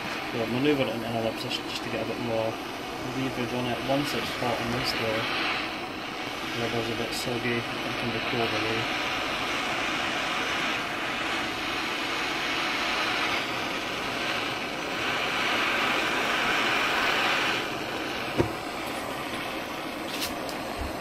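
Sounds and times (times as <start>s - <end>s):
blowtorch hissing: 0.0s - 21.0s
sharp knock: 18.4s - 18.6s.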